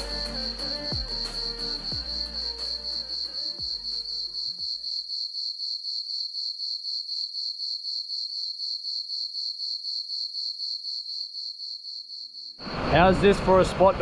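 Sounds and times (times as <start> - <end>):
music: 0.0 - 4.7
crickets chirping: 0.0 - 12.7.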